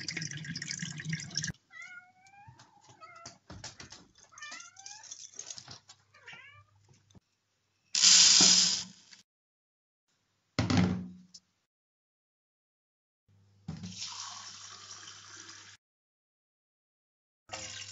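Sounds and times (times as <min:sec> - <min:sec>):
water tap running: 0:00.0 - 0:01.5, 0:13.8 - 0:15.8, 0:17.5 - 0:17.9
cat meowing: 0:01.7 - 0:03.4, 0:06.1 - 0:06.8.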